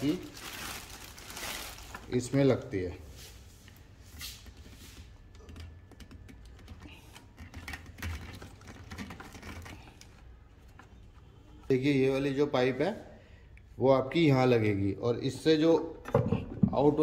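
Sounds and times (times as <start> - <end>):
plastic rustling: 0.0 - 5.2, 6.2 - 11.3.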